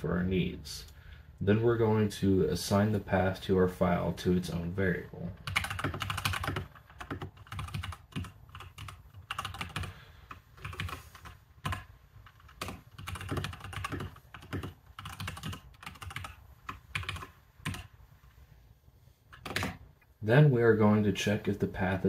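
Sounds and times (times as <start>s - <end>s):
typing on computer keyboard: 5.4s - 17.9s, 19.3s - 19.8s.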